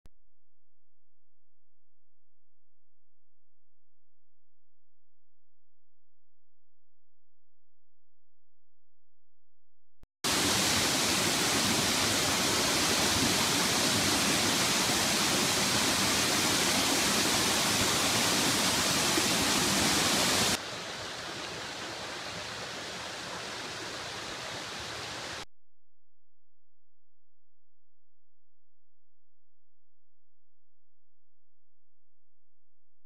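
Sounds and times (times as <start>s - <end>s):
waterfall crashing into pool: 10.3s - 25.4s.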